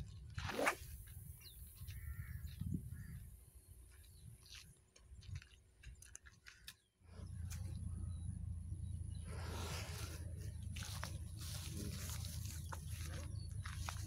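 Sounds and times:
wind rumble on microphone: 0:00.0 - 0:06.0
fishing rod swishing through air: 0:00.4 - 0:01.0.

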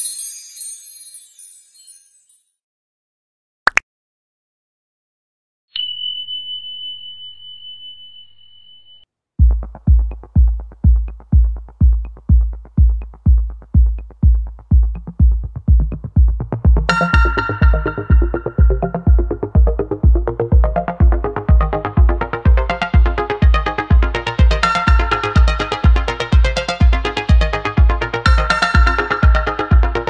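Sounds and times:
high bell-like ding: 0:05.8 - 0:09.0, 0:16.9 - 0:18.9
electronic music with kick drum: 0:09.4 - 0:30.0
synth melody: 0:16.9 - 0:30.0.

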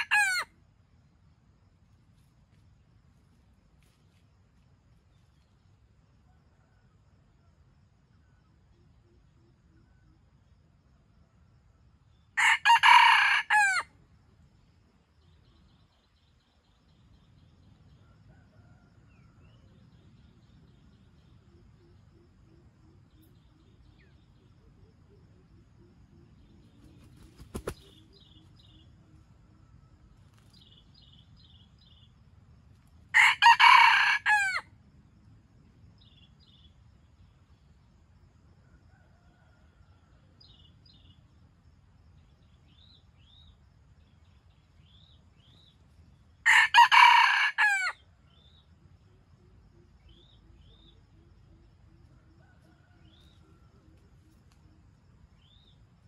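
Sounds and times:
rooster crowing: 0:00.0 - 0:00.5, 0:12.4 - 0:13.9, 0:33.1 - 0:34.7, 0:46.4 - 0:48.0
small birds chirping: 0:26.5 - 0:29.0.

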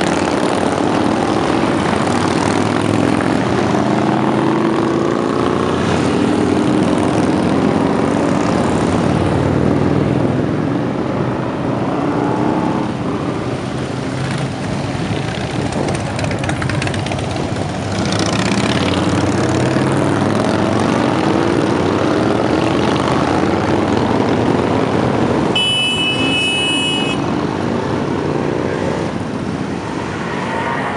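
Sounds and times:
motorcycles riding past: 0:00.0 - 0:30.9
high horn: 0:25.6 - 0:27.3.

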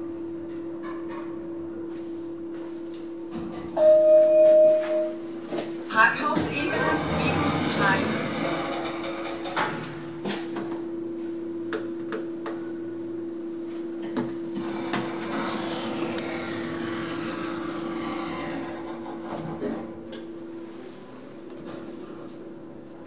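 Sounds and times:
elevator drive humming: 0:03.2 - 0:13.3.

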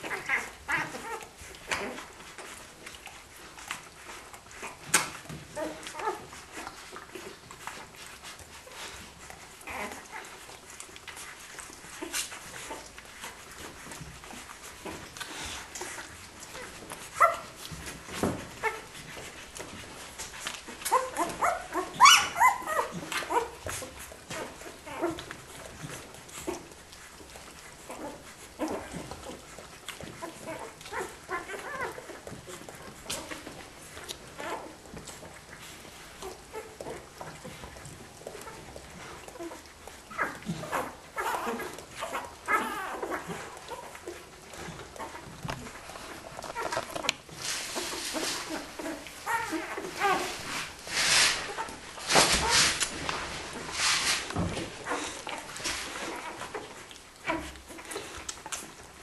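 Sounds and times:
puppies squeaking and whining: 0:00.0 - 0:59.0
small wet clicks: 0:00.0 - 0:59.0
bedding rustling: 0:42.5 - 0:56.6.

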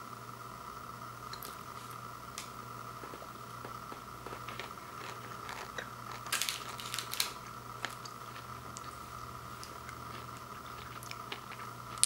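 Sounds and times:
faint steady hum: 0:00.0 - 0:12.0
plastic candy wrappers crinkling: 0:03.0 - 0:09.0.

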